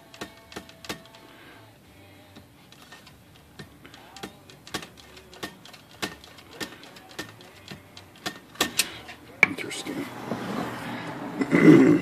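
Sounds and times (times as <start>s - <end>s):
typewriter carriage clicking: 0.0s - 1.2s, 2.7s - 9.2s.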